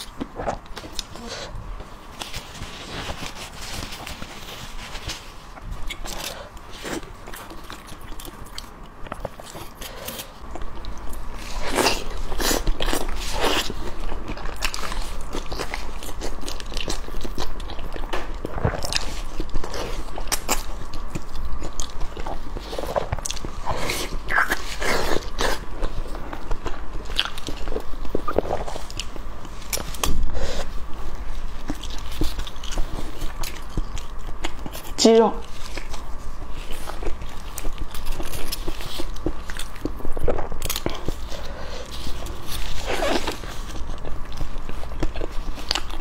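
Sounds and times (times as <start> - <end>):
biting and chewing: 0.0 - 46.0.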